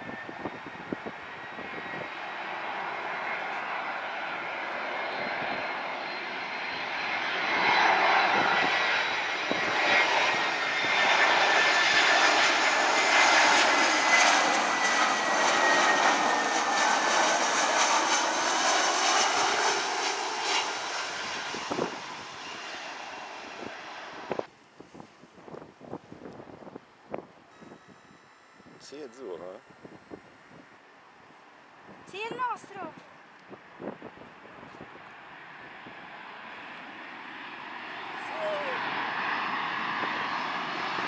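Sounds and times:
jet airliner engine noise: 0.0 - 41.0.

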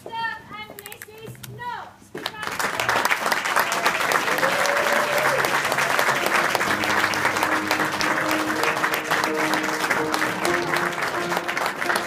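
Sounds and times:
audience clapping: 2.2 - 12.0
instrumental music: 6.0 - 12.0.

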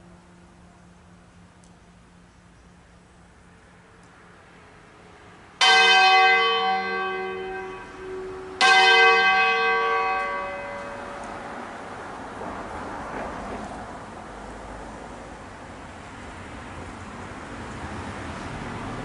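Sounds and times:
church bells ringing: 5.6 - 11.9.

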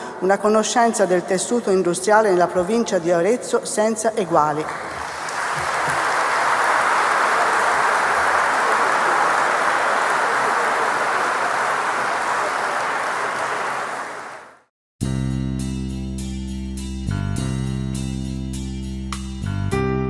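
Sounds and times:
audience applauding: 4.6 - 14.7.

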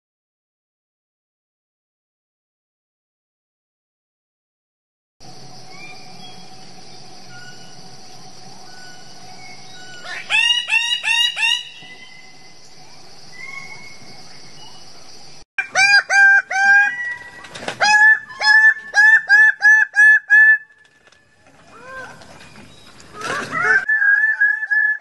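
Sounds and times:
steady high hiss: 5.2 - 15.4
birds giving harsh calls: 8.9 - 12.5.

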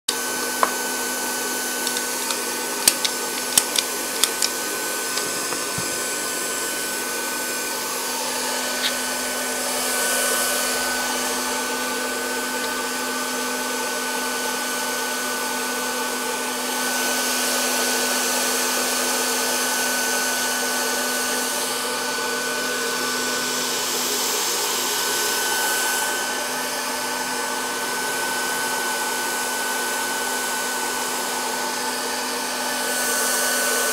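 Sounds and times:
hot air welding tool blowing: 0.1 - 15.8.

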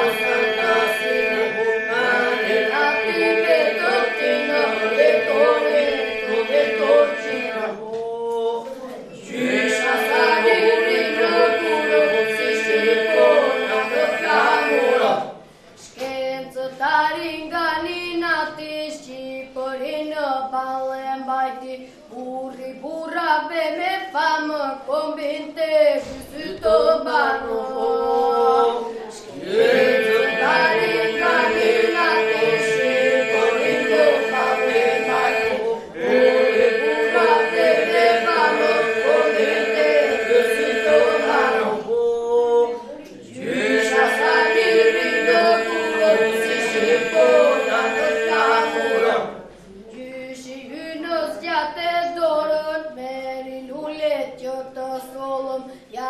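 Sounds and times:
steady held note: 0.0 - 7.8, 9.6 - 15.3, 29.7 - 41.8, 43.7 - 49.2
boys' group singing: 0.0 - 18.6, 24.4 - 52.9.

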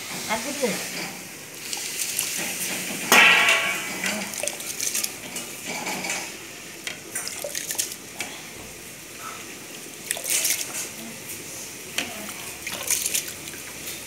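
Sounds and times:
water splashing: 1.7 - 5.4, 7.0 - 8.5, 9.7 - 14.0
metal bowl and pot clinking: 2.3 - 7.8
loud metallic clank: 3.0 - 4.2.

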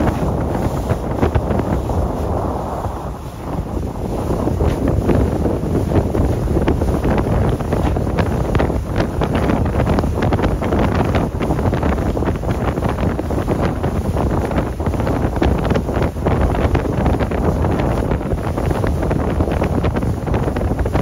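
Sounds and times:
splashing spray: 0.0 - 11.7
water rushing past hull: 0.0 - 21.0
wind buffeting microphone: 0.0 - 21.0.

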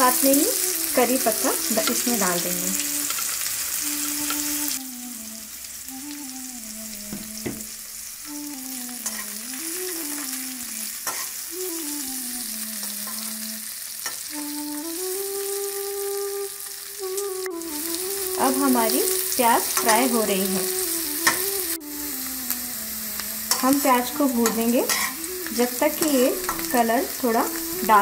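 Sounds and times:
onions sizzling in hot oil: 0.0 - 28.0
soft flute-like melody: 0.0 - 28.0
metal spoon scraping pan: 24.4 - 25.2.

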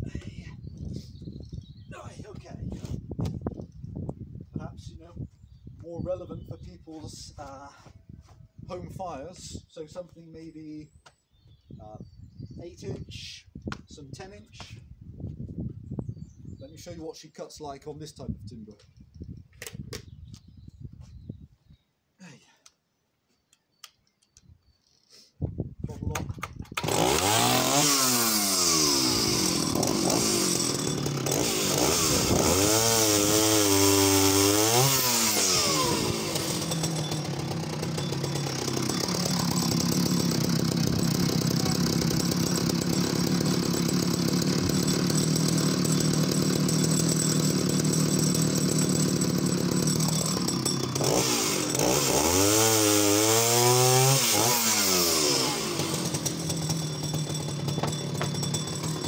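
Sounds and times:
chainsaw revving and idling: 26.7 - 59.0.

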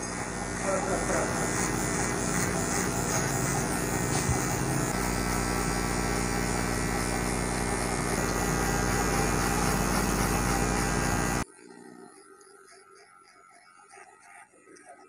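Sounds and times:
hair clipper humming: 0.0 - 11.5.

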